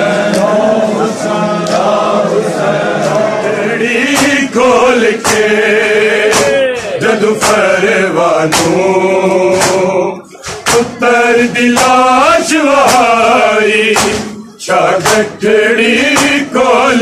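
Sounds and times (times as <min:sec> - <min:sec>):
men chanting a lament: 0:00.0 - 0:17.0
chest-beating slaps: 0:00.2 - 0:00.6, 0:04.0 - 0:05.6, 0:06.2 - 0:07.8, 0:08.4 - 0:13.2, 0:13.9 - 0:15.4, 0:16.0 - 0:16.5.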